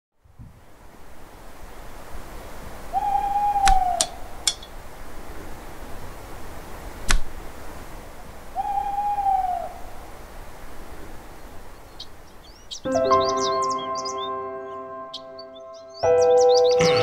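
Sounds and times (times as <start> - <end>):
night ambience hiss: 0.2 - 17.0
owl hooting: 2.9 - 4.6, 8.5 - 10.1
sharp clicks: 3.6 - 4.7, 7.1 - 7.3.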